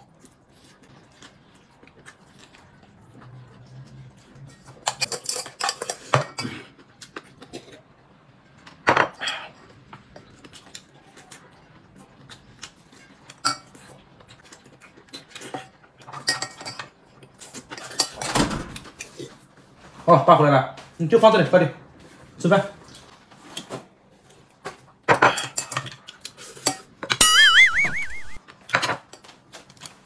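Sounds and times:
utensils clinking on plates: 0:04.5 - 0:06.7, 0:15.5 - 0:18.3, 0:25.1 - 0:27.7.

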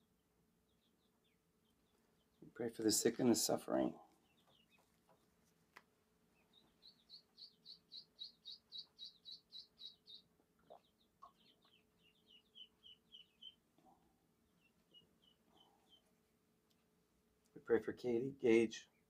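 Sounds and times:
faint high bird chirps: 0:06.3 - 0:16.1.

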